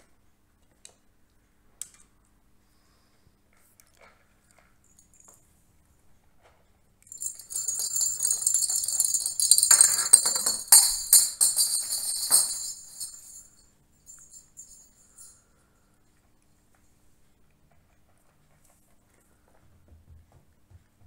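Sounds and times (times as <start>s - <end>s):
bell ball jingling and rattling: 7.1s - 15.4s.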